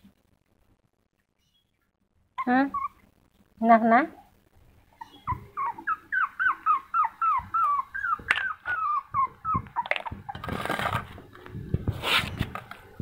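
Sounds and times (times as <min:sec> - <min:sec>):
puppy whimpering: 0:02.4 - 0:03.1, 0:04.9 - 0:10.9
short scraping noise: 0:11.9 - 0:12.6.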